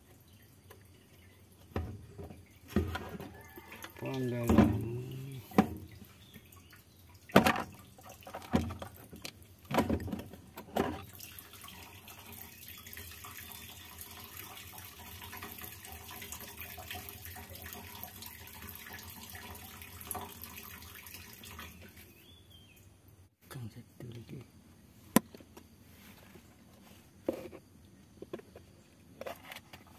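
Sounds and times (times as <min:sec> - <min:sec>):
fuel stream splashing in tank: 0:00.0 - 0:22.3.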